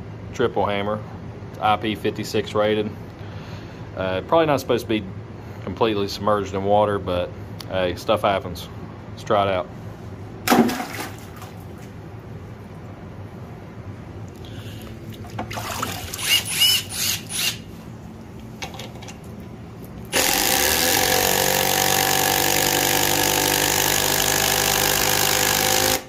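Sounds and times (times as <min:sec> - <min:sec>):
impact driver driving into wood: 0:20.1 - 0:26.0.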